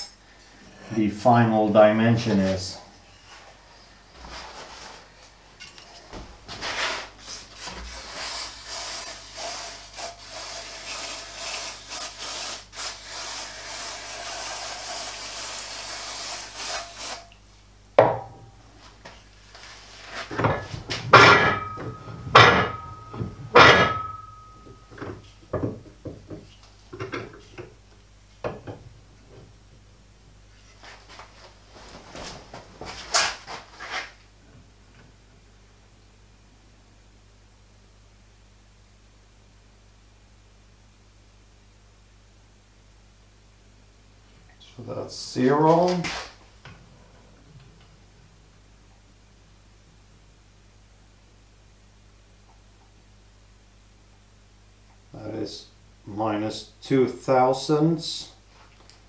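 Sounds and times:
metal clanks ringing: 0:21.1 - 0:25.0.

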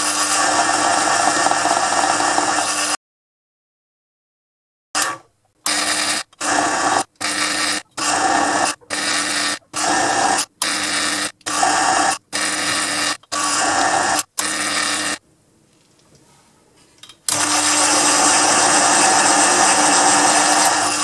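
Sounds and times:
lathe cutting thread: 0:17.3 - 0:21.0.

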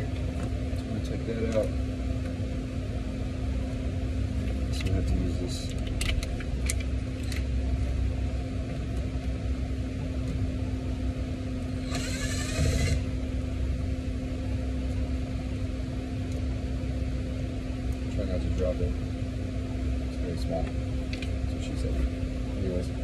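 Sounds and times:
steady low hum: 0:00.0 - 0:23.0
cordless drill motor whine: 0:11.6 - 0:13.2.

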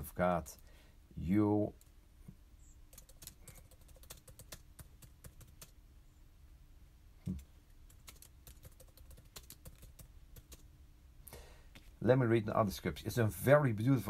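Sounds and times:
typing on computer keyboard: 0:02.9 - 0:05.8, 0:07.3 - 0:10.6.

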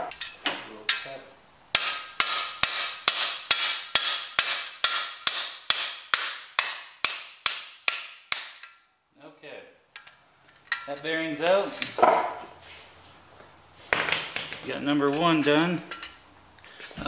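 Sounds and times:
hammer ringing on metal bar: 0:01.8 - 0:08.6
hammer tapping: 0:01.8 - 0:08.8.

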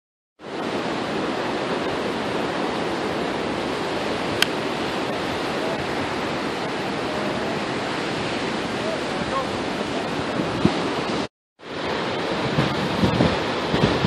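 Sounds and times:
ocean surf: 0:00.4 - 0:14.0
wind: 0:00.4 - 0:14.0
golf club striking ball: 0:04.4 - 0:04.7.

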